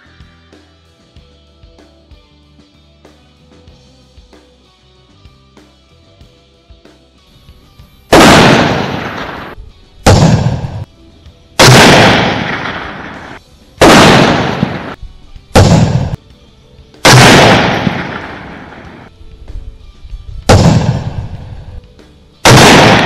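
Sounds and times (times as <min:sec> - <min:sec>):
rifle shots with echo: 0:08.1 - 0:10.9, 0:11.6 - 0:15.0, 0:15.6 - 0:16.2, 0:17.0 - 0:19.1, 0:20.5 - 0:21.8, 0:22.4 - 0:23.0.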